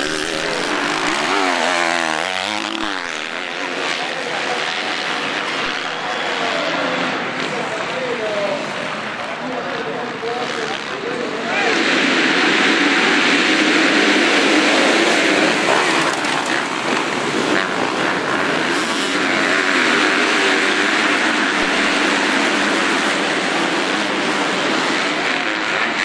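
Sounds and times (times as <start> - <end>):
motocross bikes racing: 0.0 - 26.0.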